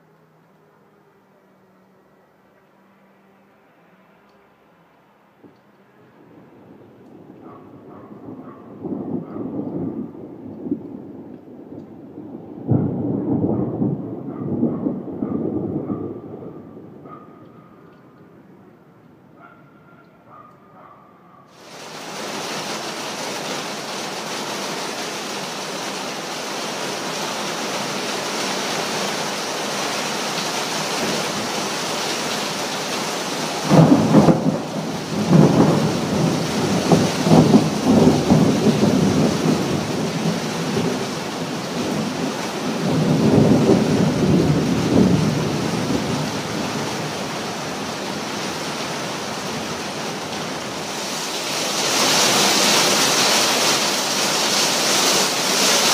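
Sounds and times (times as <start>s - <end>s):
steady rain falling: 0.0s - 19.3s, 21.5s - 55.9s
thunder rumbling: 6.0s - 18.4s, 33.2s - 52.6s.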